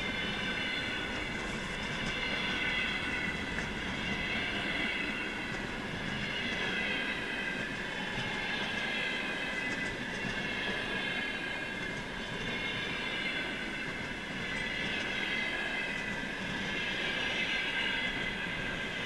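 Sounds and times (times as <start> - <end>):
wheels rumbling on rail: 0.0 - 19.0
faint clicks: 9.6 - 10.5.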